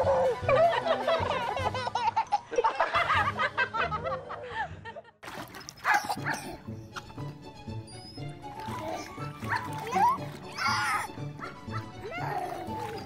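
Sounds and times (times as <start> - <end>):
background music: 0.0 - 13.0
baby squealing laughter: 5.9 - 6.6, 8.0 - 12.6.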